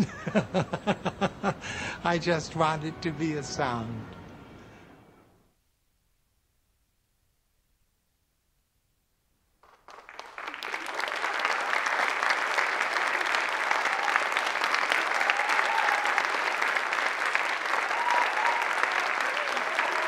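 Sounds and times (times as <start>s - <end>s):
audience applause: 9.6s - 20.0s.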